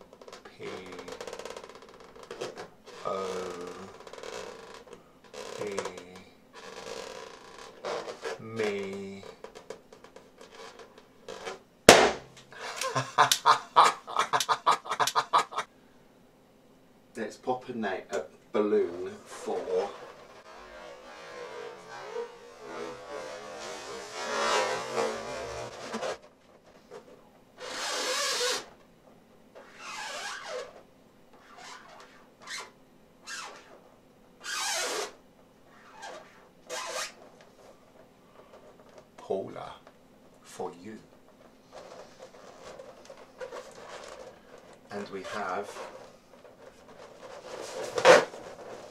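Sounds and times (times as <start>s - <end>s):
rapid squeaky sounds: 0.2s - 11.6s, 19.2s - 26.2s, 27.6s - 28.7s, 29.6s - 30.8s, 31.4s - 33.8s, 34.4s - 37.3s, 41.7s - 48.9s
balloon popping: 10.5s - 13.6s, 19.9s - 26.2s.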